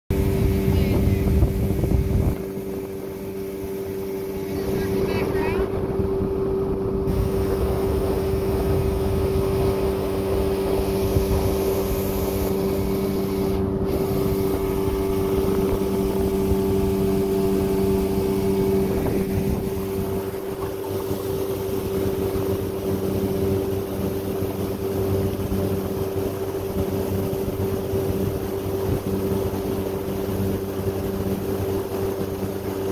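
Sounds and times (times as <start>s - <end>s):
boat motor humming: 0.1s - 32.9s
water rumbling against hull: 0.1s - 32.9s.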